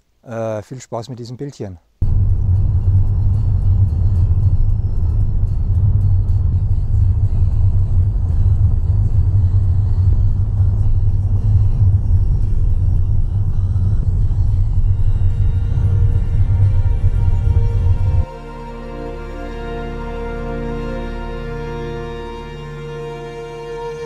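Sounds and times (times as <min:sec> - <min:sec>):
car road rumble inside cabin: 0:02.0 - 0:18.3.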